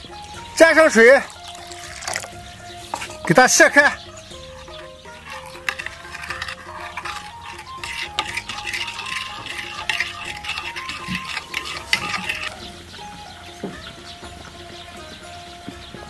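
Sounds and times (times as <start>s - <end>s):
metal spoon scraping ceramic bowl: 1.3s - 3.8s, 4.6s - 12.8s.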